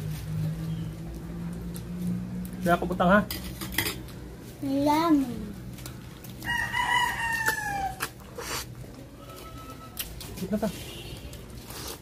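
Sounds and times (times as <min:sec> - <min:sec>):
rooster crowing: 0:06.4 - 0:08.1.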